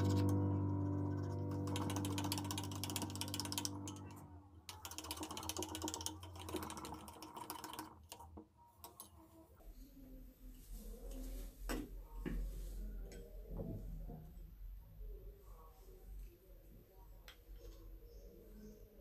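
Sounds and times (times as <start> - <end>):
background music: 0.0 - 4.1.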